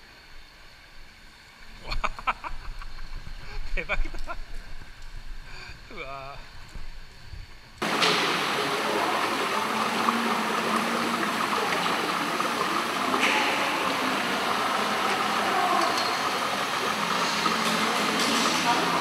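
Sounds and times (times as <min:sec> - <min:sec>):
running water rushing: 0:07.8 - 0:19.0.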